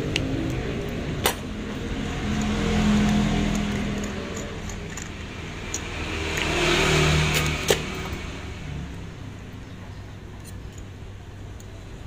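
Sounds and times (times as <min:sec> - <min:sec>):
vehicle engine passing by: 0:00.7 - 0:09.8.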